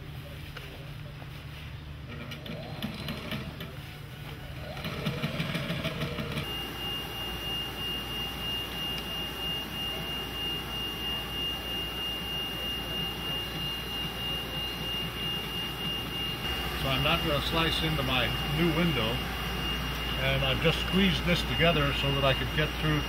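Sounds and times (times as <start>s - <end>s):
plotter motors whining: 1.9s - 23.0s
sewing machine stitching: 2.1s - 3.7s, 4.6s - 6.4s.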